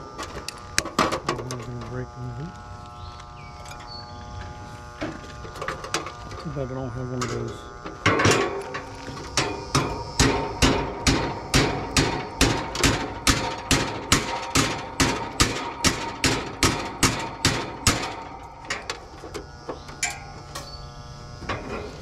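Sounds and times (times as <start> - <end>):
scattered knocks: 9.3 - 18.3
hammer blows: 9.3 - 18.4.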